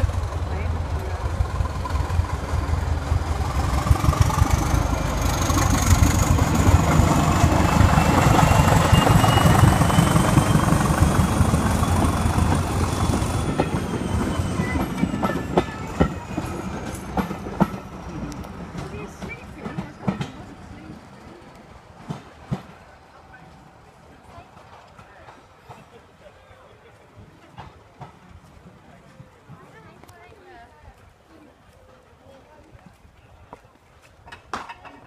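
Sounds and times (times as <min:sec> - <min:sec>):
diesel train engine whining: 0:00.0 - 0:25.7.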